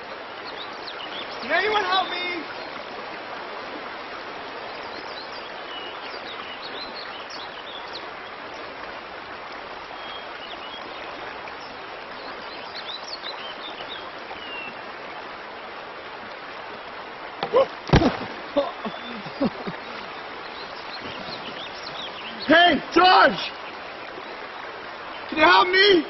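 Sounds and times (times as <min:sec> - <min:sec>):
stream running: 0:00.0 - 0:26.0
bird chirps: 0:18.6 - 0:22.5.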